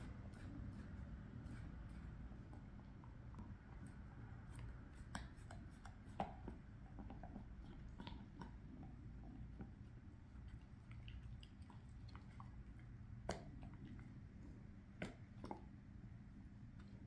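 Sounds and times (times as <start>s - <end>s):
dog chewing a hard treat: 4.5s - 14.2s.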